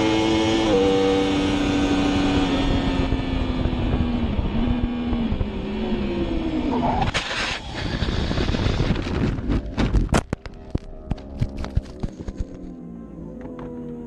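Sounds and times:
rushing wind: 0.0s - 12.6s.

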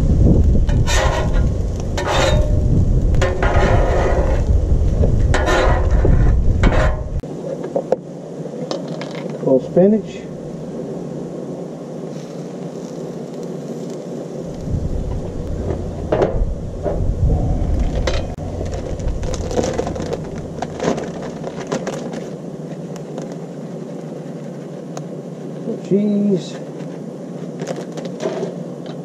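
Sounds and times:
low rumble: 0.0s - 7.2s, 14.4s - 21.7s
omelette sizzling on griddle: 0.0s - 7.3s, 12.0s - 17.2s.

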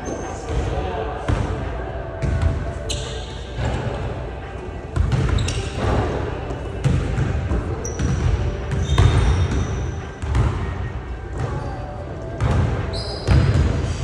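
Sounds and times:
sneakers squeaking on floor: 2.2s - 3.8s, 4.9s - 14.0s.

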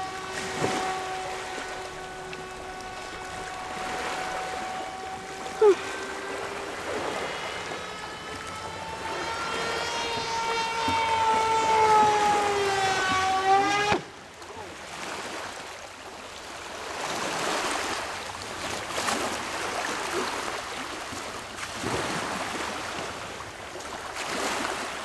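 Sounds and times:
model plane motor whining: 0.0s - 14.8s
wind and water rushing: 0.0s - 25.0s.

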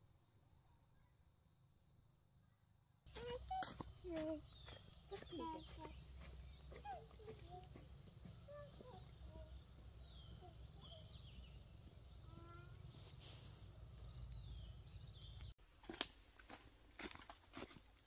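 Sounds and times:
footsteps crunching on dry leaves: 3.1s - 9.0s, 15.8s - 18.0s
birds calling: 3.1s - 15.6s.

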